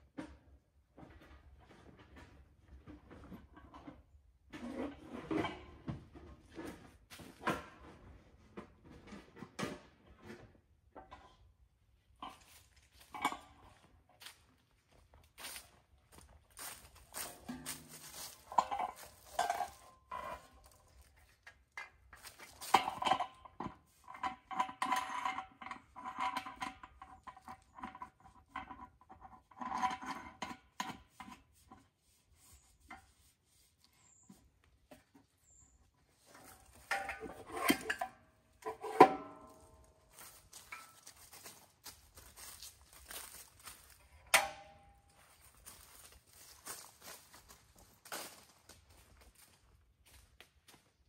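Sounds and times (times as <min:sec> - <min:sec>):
metal pan clanking and scraping: 0:17.2 - 0:20.8, 0:22.2 - 0:28.8, 0:36.3 - 0:41.1.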